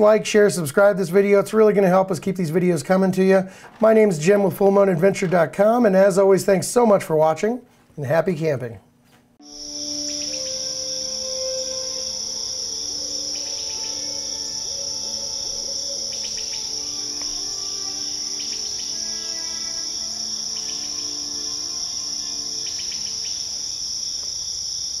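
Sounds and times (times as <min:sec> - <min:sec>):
soft background music: 0:09.4 - 0:23.8
high-pitched insect chorus: 0:09.4 - 0:25.0.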